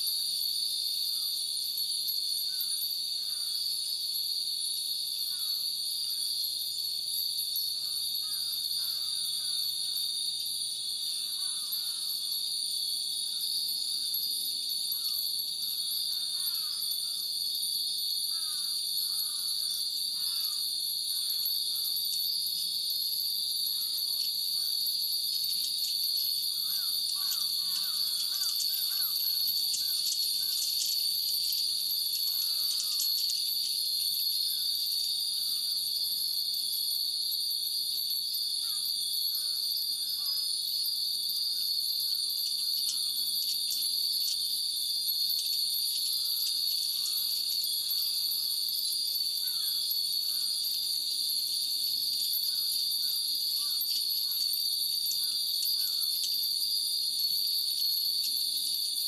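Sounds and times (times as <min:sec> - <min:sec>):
cicadas droning: 0:00.0 - 0:59.0
metal wind bells tinkling: 0:24.2 - 0:34.4.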